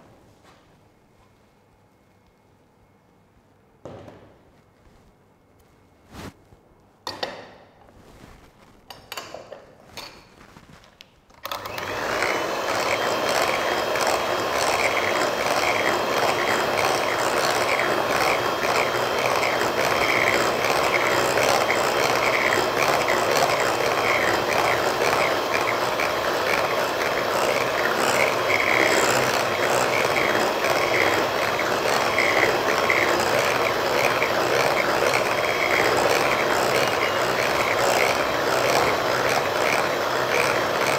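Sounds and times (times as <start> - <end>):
electric hand mixer whining: 11.4 - 40.9.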